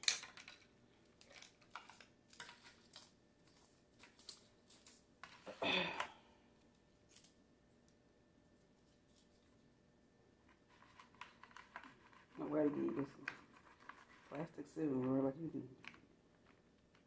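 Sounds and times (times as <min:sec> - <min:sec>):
plastic wrapper crinkling: 0:00.0 - 0:05.5
crackling rustle: 0:00.0 - 0:05.6, 0:06.6 - 0:09.7.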